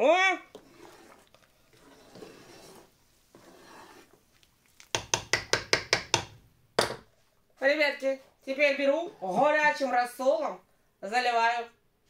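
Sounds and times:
faint scraping and stirring: 0.1 - 9.6.

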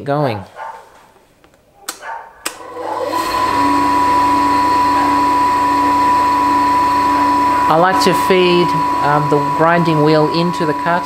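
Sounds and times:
grinder motor humming and whining: 2.6 - 11.0.

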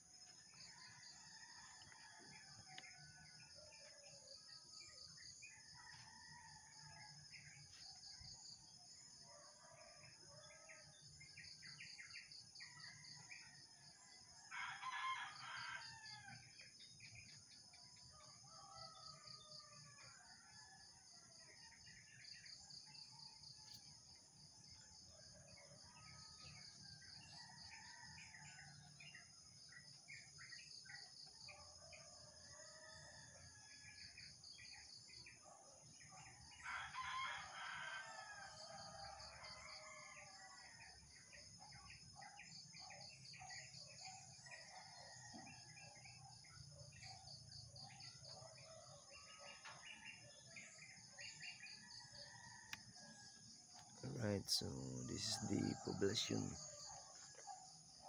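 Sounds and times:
rooster crowing: 14.5 - 16.4, 36.6 - 40.7, 54.1 - 57.0
high insect trill: 54.0 - 56.6.

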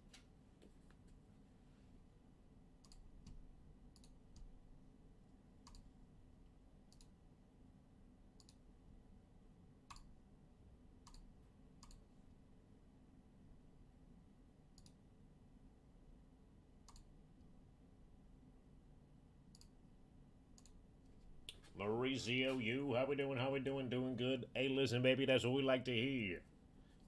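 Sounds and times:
faint sharp clicks: 5.6 - 5.9, 16.9 - 17.1.

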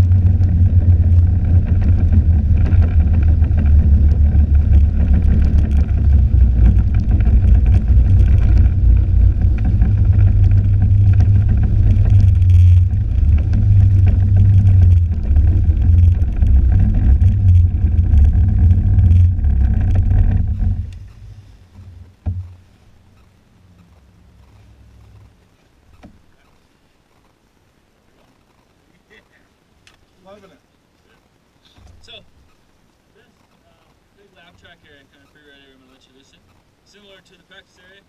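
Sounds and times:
snowmobile engine drone: 0.0 - 21.7.

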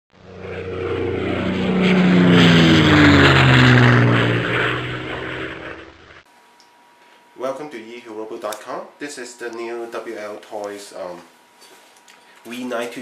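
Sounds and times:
propeller airplane flying past: 0.1 - 6.3.

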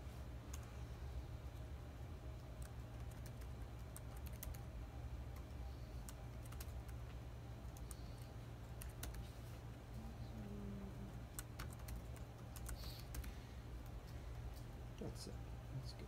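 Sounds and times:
keyboard keys clicking: 2.6 - 4.6, 8.7 - 9.2, 11.3 - 13.3.

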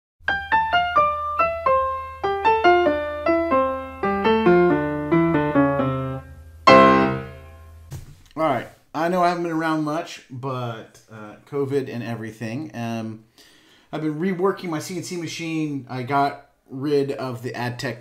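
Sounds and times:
piano-like keyboard jingle: 0.3 - 7.5.

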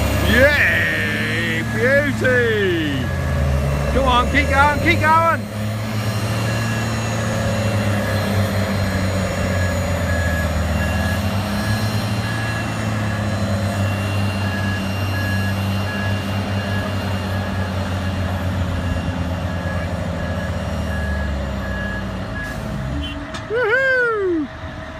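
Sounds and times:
heavy diesel engines under load: 0.0 - 24.9
electronic warning beep: 9.6 - 18.3.

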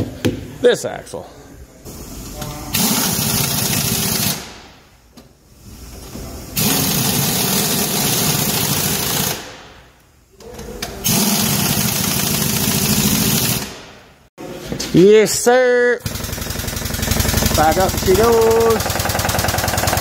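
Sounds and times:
pneumatic impact wrench rattling: 2.7 - 4.6, 6.6 - 9.7, 11.0 - 14.0, 16.0 - 20.0.

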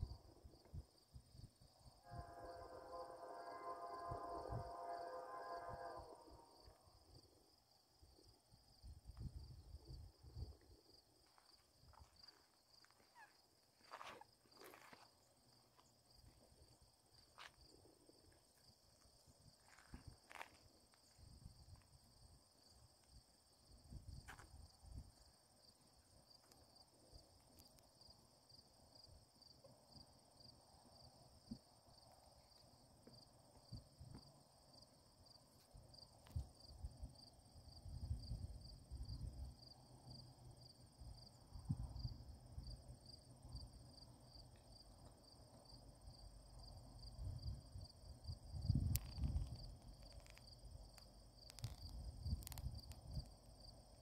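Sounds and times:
cricket chirping: 0.0 - 54.0
wind rumbling on microphone: 8.8 - 10.9, 37.8 - 39.5, 47.2 - 50.4, 51.5 - 53.4.

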